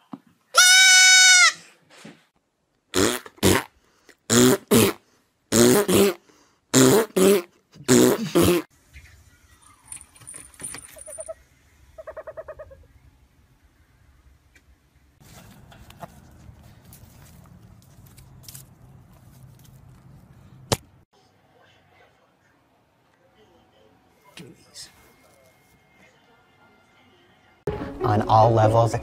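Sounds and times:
baby goat bleating: 0.6 - 1.6.

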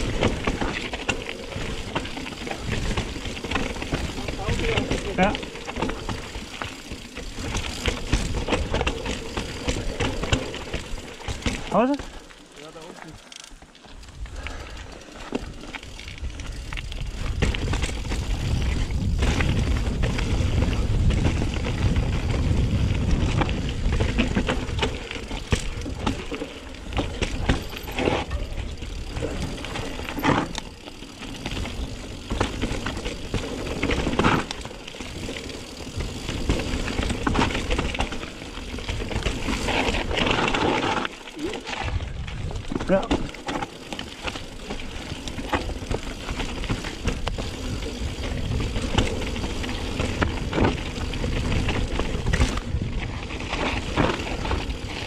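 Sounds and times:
bike rattling and knocking: 0.0 - 55.0
bike tyres rolling over gravel: 0.0 - 55.0
wind rumble on microphone: 15.4 - 25.0, 41.7 - 42.9, 45.9 - 55.0.

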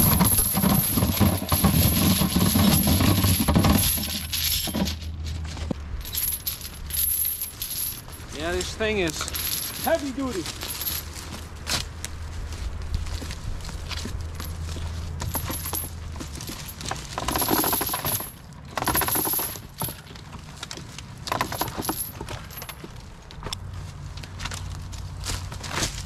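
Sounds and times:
steel chain clinking and rattling: 0.0 - 11.4, 13.9 - 23.3.

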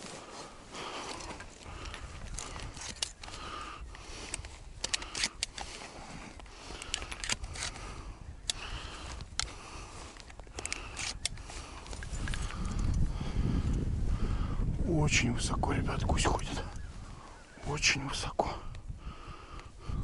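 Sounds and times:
gear rustling and scraping: 0.0 - 3.4, 9.0 - 13.1
sharp clicks: 4.2 - 5.8, 6.4 - 7.8, 8.4 - 12.9.

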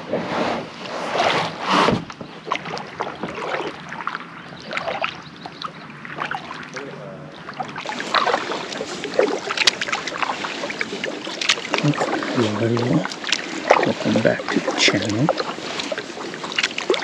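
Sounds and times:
paddle splashing in water: 0.0 - 17.0
water dripping: 7.6 - 17.0.

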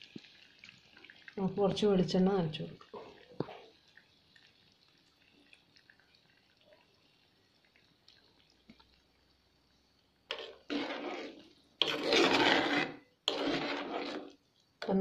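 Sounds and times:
spoon scraping clay pot: 10.3 - 15.0.

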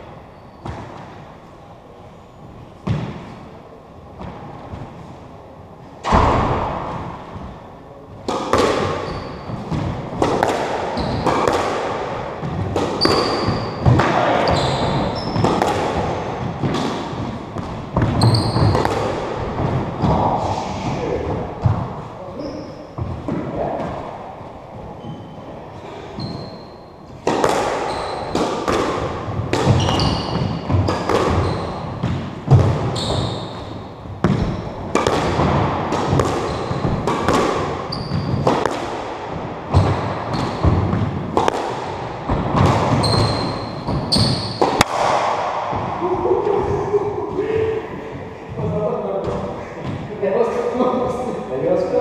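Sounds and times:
squash ball hitting rackets and wall: 0.6 - 1.4, 2.7 - 5.1, 6.0 - 50.6
shoes squeaking on wooden floor: 8.8 - 10.0, 10.9 - 11.4, 12.5 - 16.7, 18.0 - 18.8, 24.9 - 27.2, 27.8 - 28.4, 29.7 - 32.0, 32.8 - 34.8, 36.4 - 37.0, 37.9 - 38.6, 39.8 - 40.8, 42.3 - 44.7.

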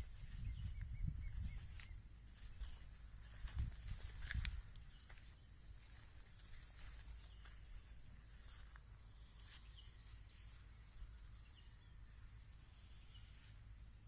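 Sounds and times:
low rumble on microphone: 0.0 - 5.0
high-pitched insect drone: 0.0 - 14.0.

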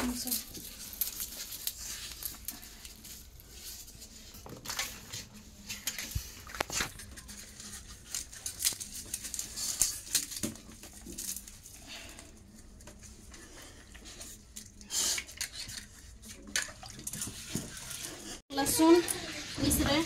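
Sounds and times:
garlic skins crackling and tearing: 0.0 - 4.0, 5.6 - 12.6.

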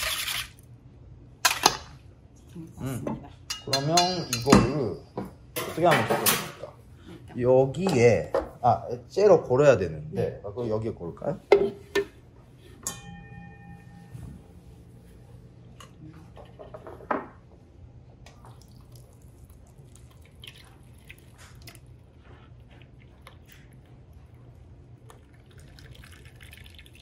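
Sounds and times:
liquid dripping through a sieve: 18.3 - 27.0.

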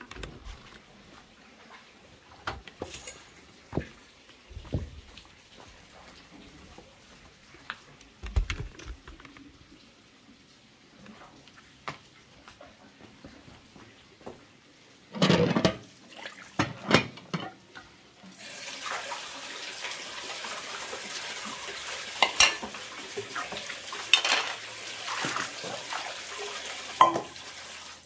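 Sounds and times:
water running and splashing: 0.6 - 15.2, 15.8 - 28.0
metal cookware clattering: 15.1 - 15.9, 16.6 - 17.6, 22.2 - 22.8, 24.0 - 24.6, 27.0 - 27.4.

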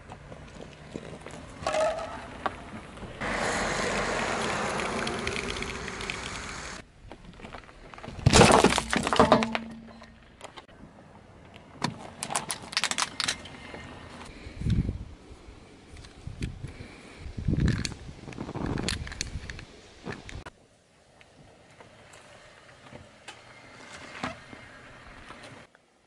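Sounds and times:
aerosol foam hissing from can: 3.2 - 6.8
car tyre crunching a can: 7.3 - 10.5.

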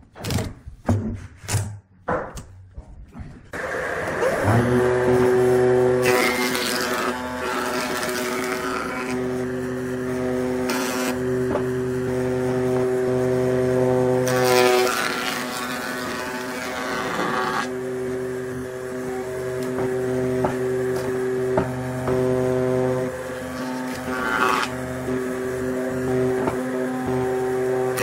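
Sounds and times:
tool hissing cutting wood: 3.6 - 11.3, 14.2 - 17.8, 23.3 - 24.8
wood lathe motor hum: 3.6 - 28.0.

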